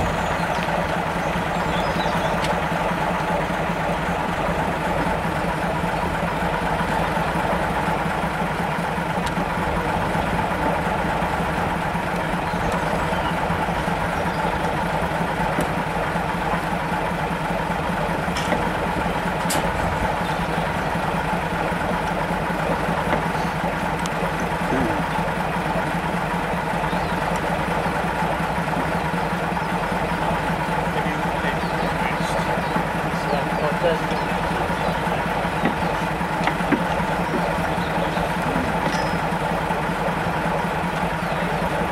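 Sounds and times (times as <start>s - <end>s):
diesel locomotive idling: 0.0s - 41.9s
faint clicks: 9.2s - 9.4s.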